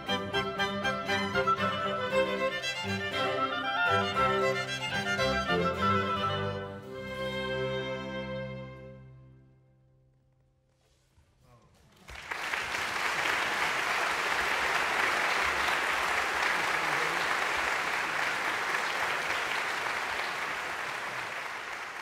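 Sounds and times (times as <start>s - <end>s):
audience applause: 11.9s - 22.0s.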